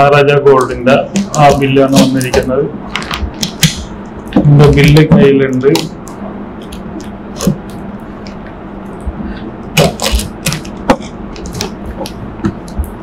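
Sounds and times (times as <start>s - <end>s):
utility knife cutting packing tape: 9.8s - 10.8s.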